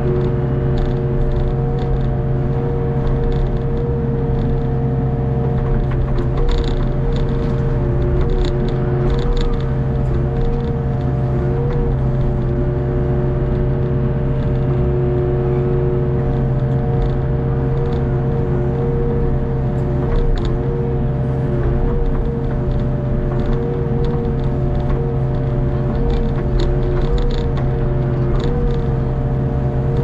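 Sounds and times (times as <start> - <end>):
excavator engine and hydraulics: 0.0 - 30.0
light clicks and knocks: 5.5 - 11.1.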